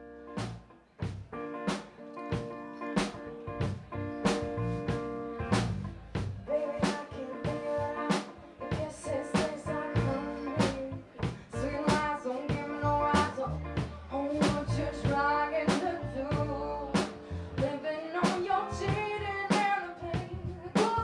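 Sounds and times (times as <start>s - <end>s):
drum kit beat: 0.0s - 21.0s
electric guitar chords: 0.0s - 21.0s
woman singing: 6.4s - 21.0s.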